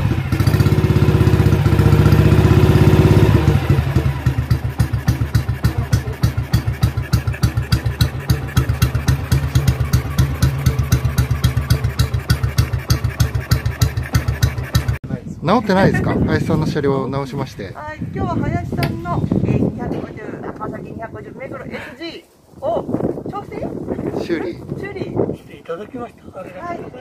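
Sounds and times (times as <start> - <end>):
motorcycle engine revving and idling: 0.0 - 15.0.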